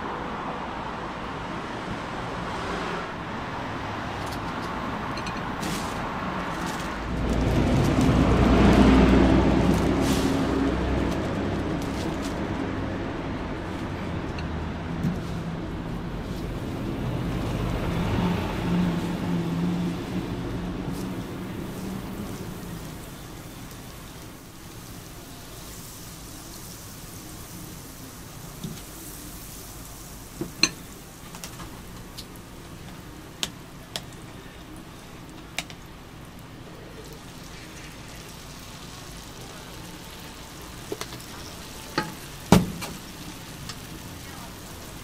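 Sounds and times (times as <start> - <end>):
food sizzling on a griddle: 18.4 - 45.0.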